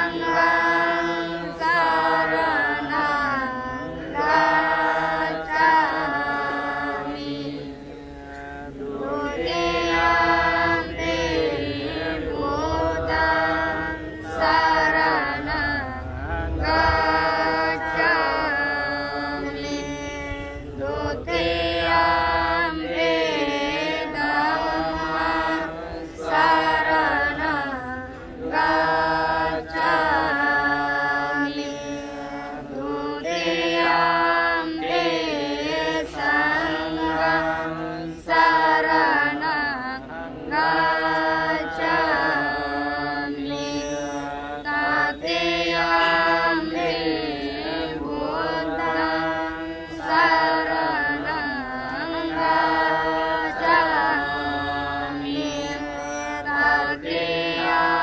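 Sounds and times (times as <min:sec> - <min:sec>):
steady low drone: 0:00.0 - 0:42.8
person chanting: 0:00.0 - 0:58.0.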